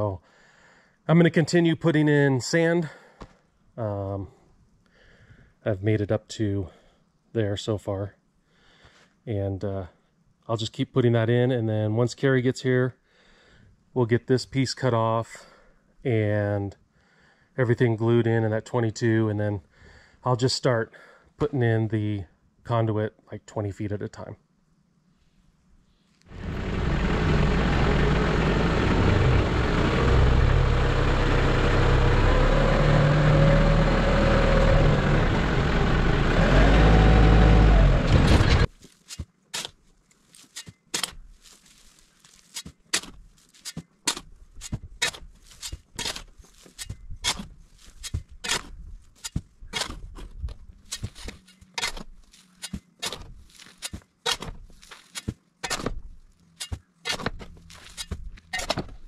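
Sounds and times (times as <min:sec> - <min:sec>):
tractor engine running: 0:26.3 - 0:38.7
shovel scraping sand: 0:38.7 - 0:55.9, 0:56.5 - 0:58.8.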